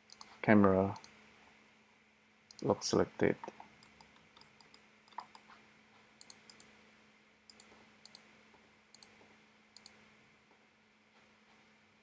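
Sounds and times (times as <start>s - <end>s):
mouse and keyboard clicks: 0.0s - 0.4s, 3.8s - 5.6s, 6.2s - 6.7s, 7.5s - 8.3s, 8.9s - 9.2s, 9.8s - 10.0s
faint steady hum: 0.0s - 12.0s.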